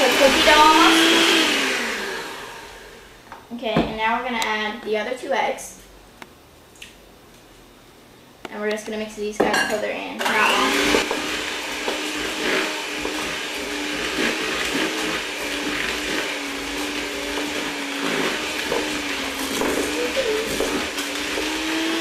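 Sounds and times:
electric hand mixer whirring: 0.0s - 3.2s, 10.2s - 22.0s.

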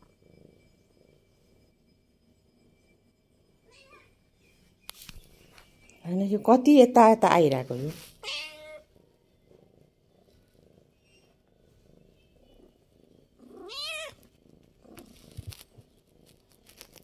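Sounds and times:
cat purring: 0.0s - 17.0s
cat meowing: 3.7s - 4.1s, 8.2s - 8.9s, 13.4s - 14.2s.

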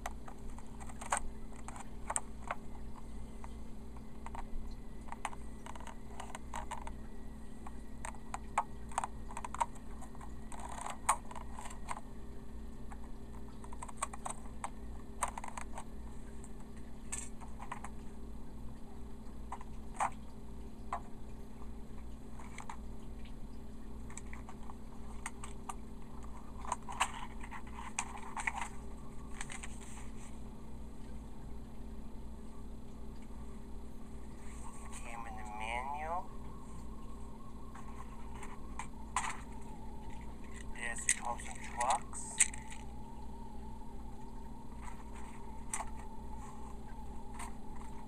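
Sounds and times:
toy and packaging clicks and rustles: 0.0s - 7.0s, 7.6s - 12.1s, 12.9s - 18.0s, 24.0s - 30.4s, 37.7s - 43.0s, 44.7s - 48.0s
steady low hum: 0.0s - 48.0s.

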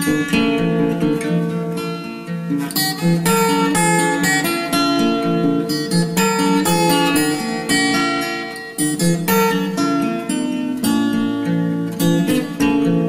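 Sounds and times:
plucked guitar melody: 0.0s - 13.0s.

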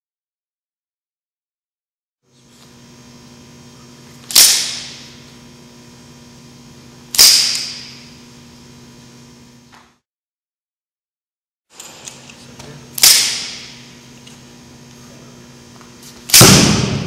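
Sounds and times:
steady low hum: 2.3s - 10.0s, 11.7s - 17.0s.

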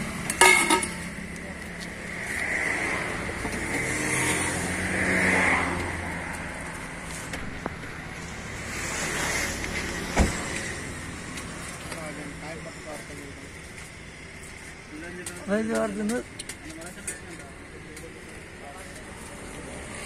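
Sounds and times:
vehicles passing: 0.0s - 20.0s
sharp thump: 10.1s - 10.5s.

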